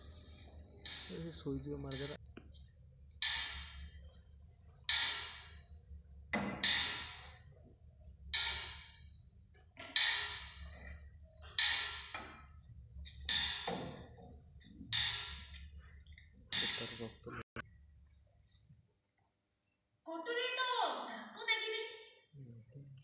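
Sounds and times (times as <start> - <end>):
sharp percussion strikes: 0.8 - 2.2, 16.5 - 17.4.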